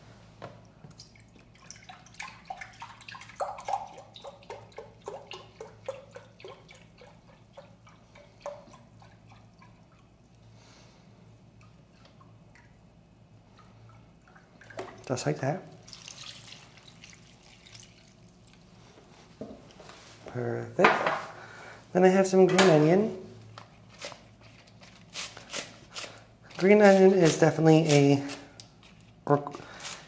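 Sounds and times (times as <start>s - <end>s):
liquid pouring into glass cup: 15.8s - 18.5s.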